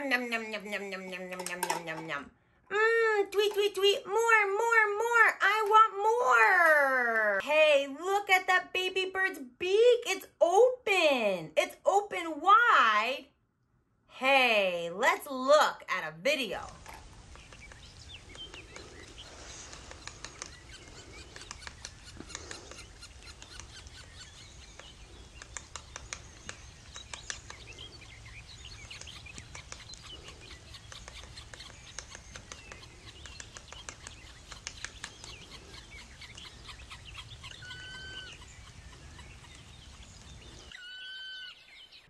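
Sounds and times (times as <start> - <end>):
birds chirping and calling: 0.3 - 2.2, 16.5 - 42.0
quick ticks: 16.6 - 28.0, 28.8 - 40.3.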